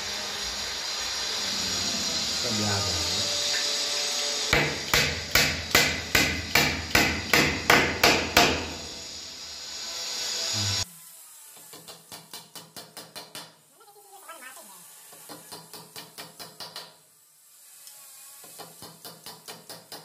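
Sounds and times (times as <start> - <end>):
hammer driving nail into wood: 4.5 - 8.8.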